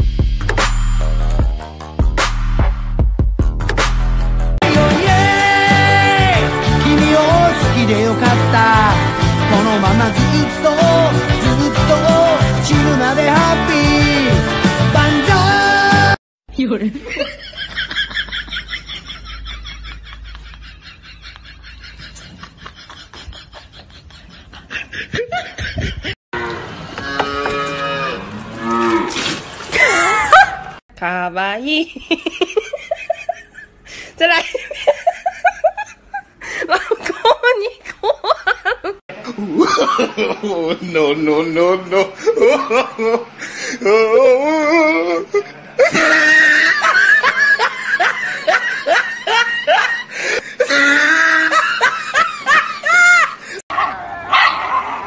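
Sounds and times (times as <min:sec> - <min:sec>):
person laughing: 0:16.8 - 0:26.2, 0:29.7 - 0:30.8, 0:31.9 - 0:53.6
calf mooing: 0:26.4 - 0:29.2.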